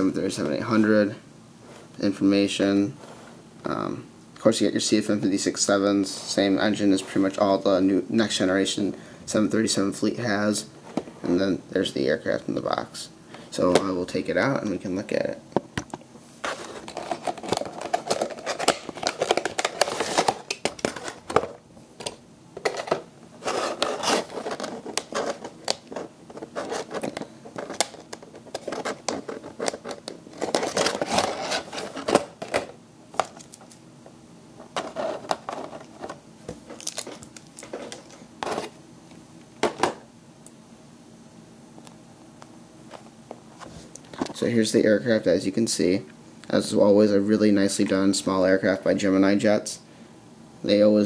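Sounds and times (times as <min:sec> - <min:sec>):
cardboard scraping and crinkling: 0:16.4 - 0:21.5, 0:22.6 - 0:32.7, 0:34.7 - 0:38.8.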